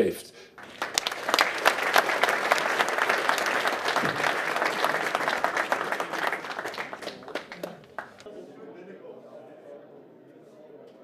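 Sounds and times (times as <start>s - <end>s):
crowd applauding: 0.6s - 8.3s.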